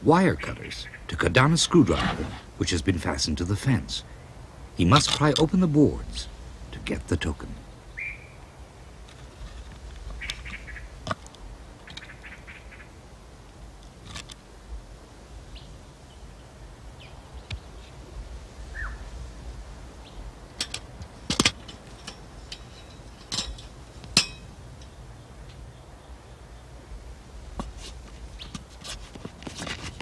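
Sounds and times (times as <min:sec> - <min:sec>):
hand tools knocking on wood and metal: 0:20.6 - 0:24.6.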